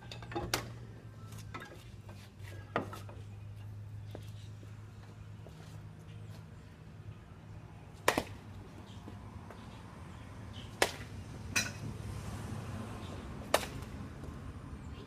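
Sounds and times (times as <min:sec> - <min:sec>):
bat cracking baseball: 0:08.0 - 0:08.4, 0:13.4 - 0:14.0.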